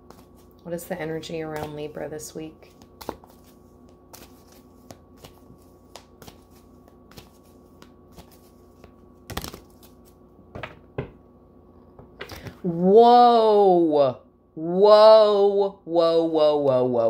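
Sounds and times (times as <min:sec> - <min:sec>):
cards being shuffled: 0:00.0 - 0:00.6, 0:02.6 - 0:10.2.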